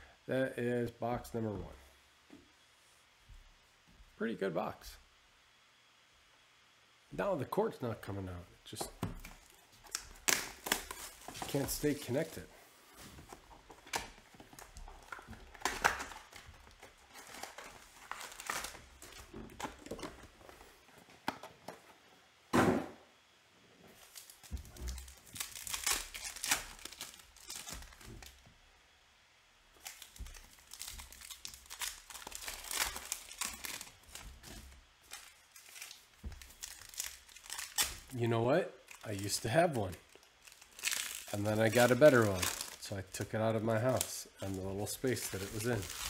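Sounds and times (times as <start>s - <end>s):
foil wrappers crinkling and tearing: 9.2s - 20.6s, 24.0s - 28.4s, 29.7s - 38.2s, 38.8s - 46.0s
loud thump: 22.5s - 23.0s.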